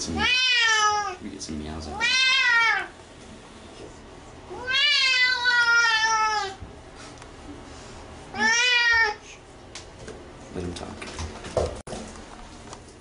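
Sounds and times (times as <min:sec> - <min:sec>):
cat meowing: 0:00.2 - 0:01.2, 0:01.9 - 0:02.9, 0:04.5 - 0:06.6, 0:08.3 - 0:09.2.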